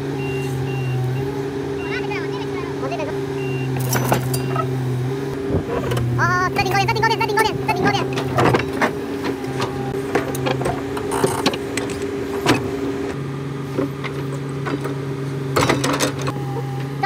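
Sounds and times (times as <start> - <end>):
excavator diesel engine running: 0.0 - 17.0
metallic clanks and knocks: 3.8 - 4.7, 13.8 - 17.0.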